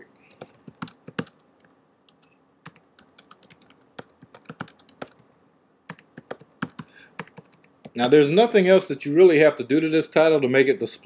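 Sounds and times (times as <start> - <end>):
computer keyboard typing: 0.3 - 8.2.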